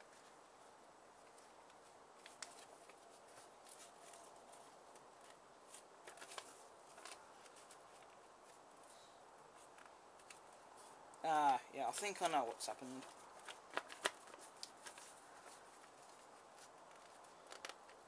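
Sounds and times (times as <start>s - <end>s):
paper rustling and crinkling: 1.2s - 8.9s, 11.9s - 18.0s.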